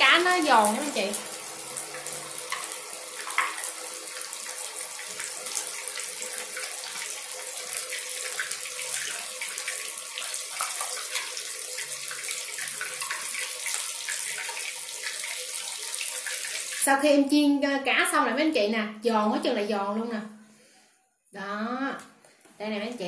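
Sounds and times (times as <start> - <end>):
fish deep-frying in oil: 0.0 - 17.3.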